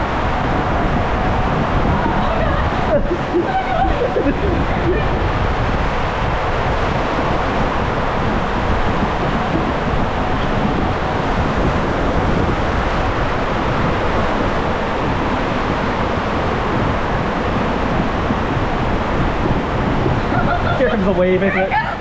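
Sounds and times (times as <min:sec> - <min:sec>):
raft sliding down water-slide tube: 0:00.0 - 0:22.0
water rushing: 0:00.0 - 0:22.0.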